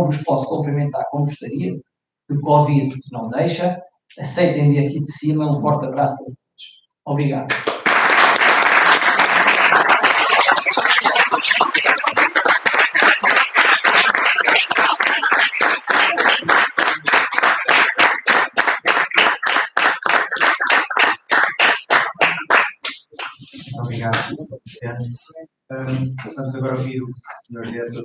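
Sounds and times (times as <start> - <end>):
small group applauding: 7.5 - 24.4.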